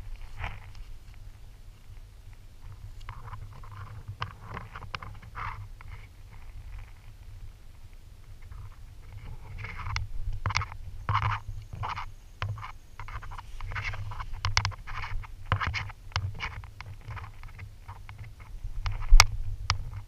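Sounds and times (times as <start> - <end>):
camera handling rumble: 8.4 - 20.0.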